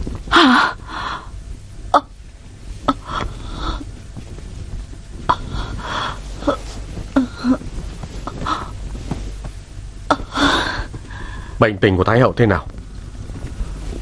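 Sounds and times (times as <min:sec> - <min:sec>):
woman moaning and gasping: 0:00.3 - 0:01.4, 0:02.9 - 0:04.0, 0:05.3 - 0:08.8, 0:10.1 - 0:11.4.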